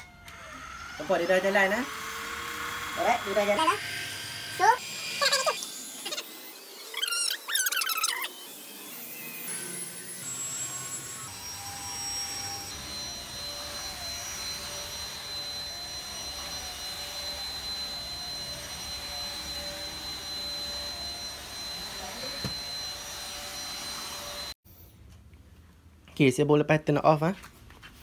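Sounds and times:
stick vacuum running: 0:00.2 - 0:06.2, 0:09.2 - 0:24.6.

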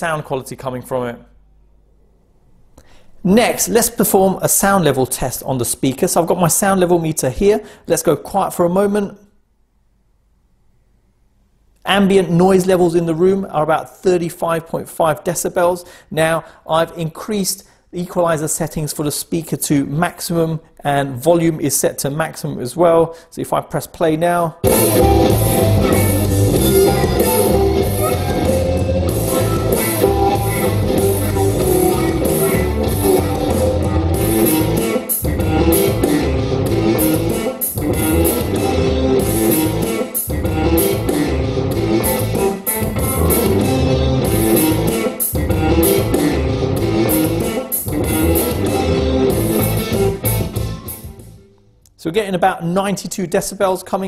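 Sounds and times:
rock instrumental from speaker: 0:24.6 - 0:51.5.

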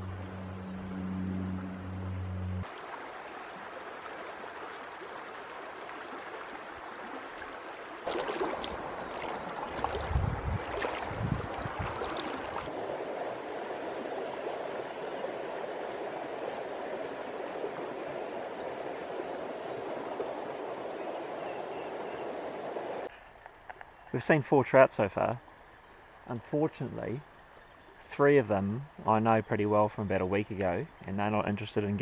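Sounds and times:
river running over stones: 0:02.6 - 0:23.1.

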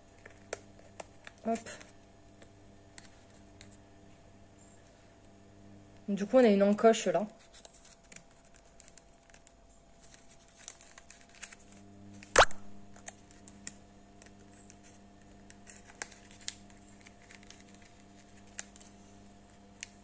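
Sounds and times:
paper crinkling and clicking: 0:00.1 - 0:03.8, 0:07.3 - 0:12.3, 0:12.9 - 0:20.0.

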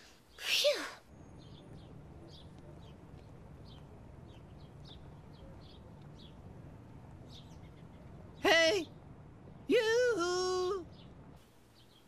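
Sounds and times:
faint bird chirps: 0:00.0 - 0:12.0
low steady hum: 0:01.1 - 0:12.0.

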